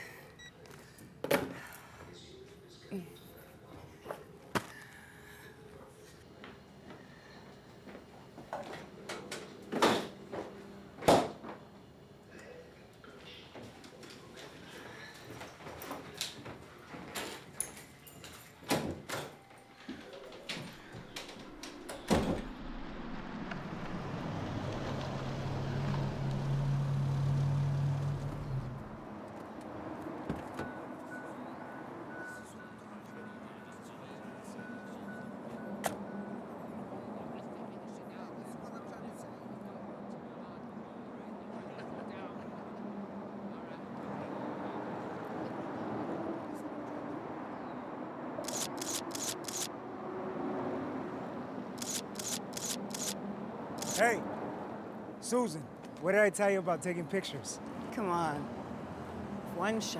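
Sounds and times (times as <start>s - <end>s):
road noise: 19.7s - 59.9s
car engine humming: 21.1s - 29.2s
camera shutter bursts: 48.4s - 49.7s, 51.8s - 53.2s, 53.8s - 54.1s.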